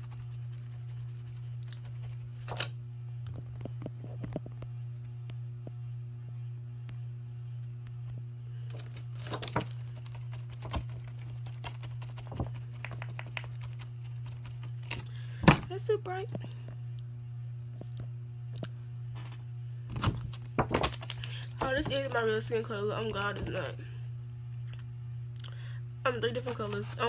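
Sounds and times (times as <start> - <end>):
low hum: 0.0 - 27.0.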